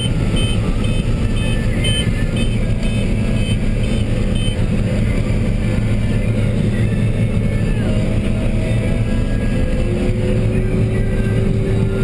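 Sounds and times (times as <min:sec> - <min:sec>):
repeating electronic beep: 0:00.0 - 0:04.6
combine engine and machinery drone: 0:00.0 - 0:12.0.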